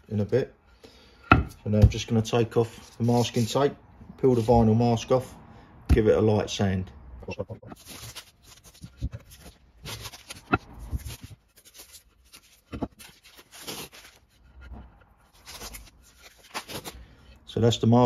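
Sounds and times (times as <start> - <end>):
tape rustling: 7.7 - 17.4.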